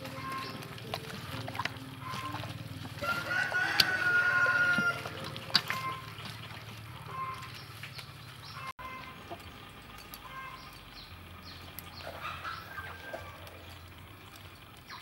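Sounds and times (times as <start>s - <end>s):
rooster crowing: 3.0s - 6.0s, 12.2s - 13.6s.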